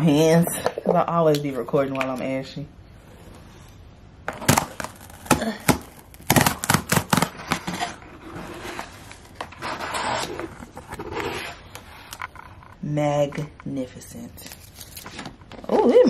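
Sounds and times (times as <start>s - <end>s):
cardboard scraping and tearing: 4.3s - 11.7s.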